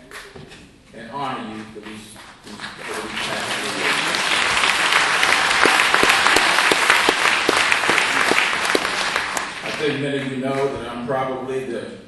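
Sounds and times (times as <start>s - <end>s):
audience applauding: 1.8s - 10.7s.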